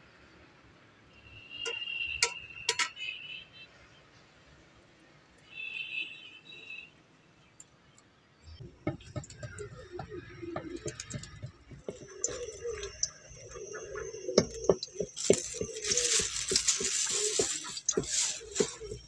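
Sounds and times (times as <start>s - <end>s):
utensils and dishes clinking: 10.7s - 19.0s
rustling hiss: 10.8s - 19.0s.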